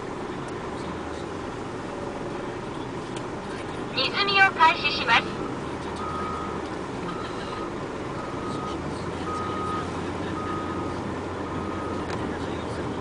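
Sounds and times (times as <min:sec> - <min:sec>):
diesel engine droning: 0:00.0 - 0:13.0
reversing alarm beeping: 0:04.8 - 0:12.1.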